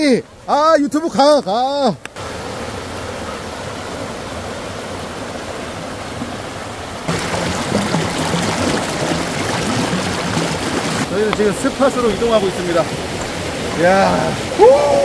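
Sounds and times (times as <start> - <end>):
stream rushing over rocks: 1.9 - 15.0.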